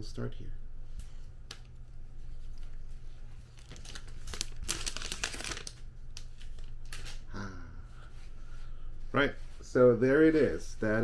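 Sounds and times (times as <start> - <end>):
plastic film peeling and crinkling: 1.4 - 7.2.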